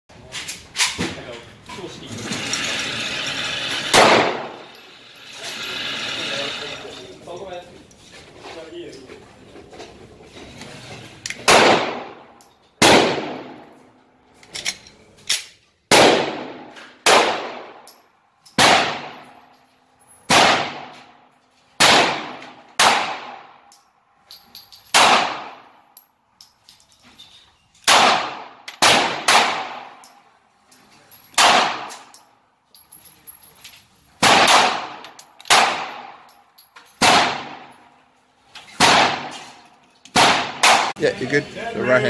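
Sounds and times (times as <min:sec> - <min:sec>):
pistol shots echoing indoors: 0:03.9 - 0:04.6, 0:11.4 - 0:13.6, 0:15.9 - 0:17.9, 0:18.6 - 0:19.3, 0:20.3 - 0:21.0, 0:21.8 - 0:23.6, 0:24.9 - 0:25.6, 0:27.9 - 0:30.0, 0:34.2 - 0:36.2, 0:37.0 - 0:37.7, 0:38.8 - 0:39.4, 0:40.1 - 0:40.9.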